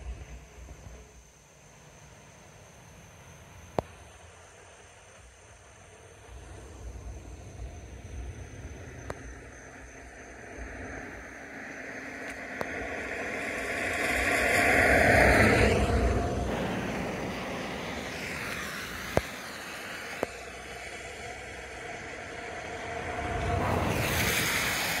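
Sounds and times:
cars passing: 7.2s - 25.0s.

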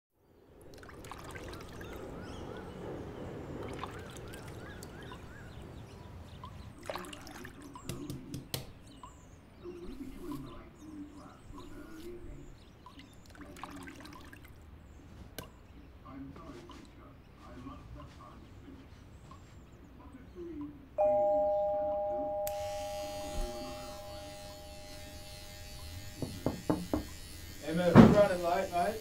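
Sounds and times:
birds chirping: 0.2s - 29.0s
water trickling into sink: 0.7s - 2.0s, 12.8s - 14.5s
razor clicking and tapping: 22.5s - 29.0s.

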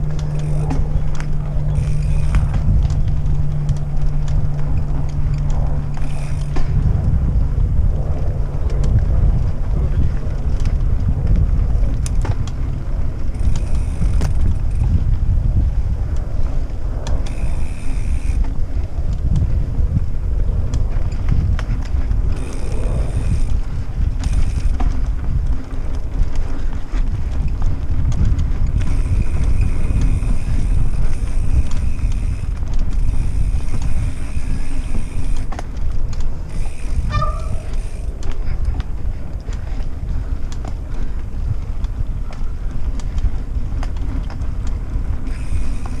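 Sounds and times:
thin high whir: 0.0s - 6.9s, 16.9s - 18.6s, 22.3s - 24.9s, 28.8s - 35.7s
bike knocks and rattles: 0.0s - 46.0s
bike tyre noise: 0.0s - 46.0s
wind buffeting microphone: 0.0s - 46.0s.

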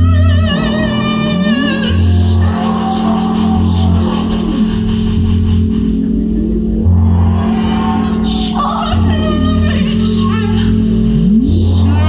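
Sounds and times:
woman singing: 0.0s - 4.8s
low bass notes: 0.0s - 12.0s.

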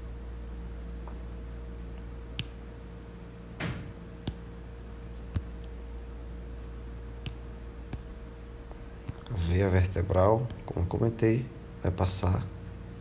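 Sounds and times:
low background hum: 0.0s - 13.0s
soft clicks and taps: 2.0s - 2.6s.

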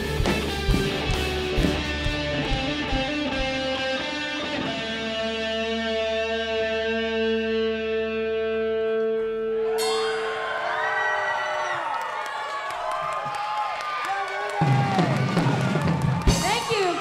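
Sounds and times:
electric guitar and bass chord ringing: 0.0s - 11.3s
audience cheering and whooping: 9.6s - 17.0s.

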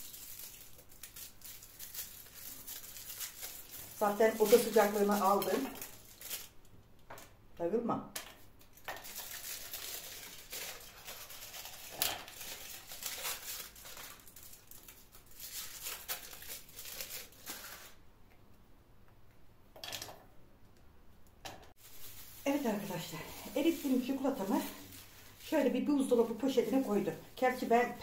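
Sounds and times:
packaging crinkling and tearing: 0.0s - 6.6s, 8.6s - 18.0s, 21.8s - 28.0s.

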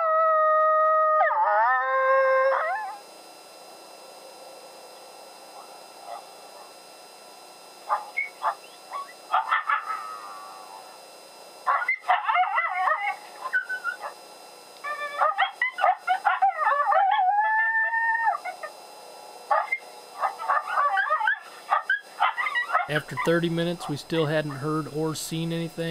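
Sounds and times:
coyote howl: 0.0s - 3.0s, 7.9s - 11.0s, 11.7s - 14.1s, 14.8s - 18.8s, 19.5s - 23.3s
coyote yips and barks: 19.5s - 19.8s, 20.4s - 22.9s.

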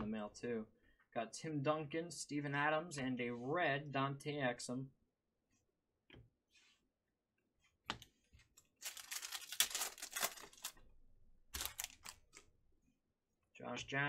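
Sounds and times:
foil wrapper tearing and crinkling: 8.8s - 10.8s, 11.6s - 12.4s.

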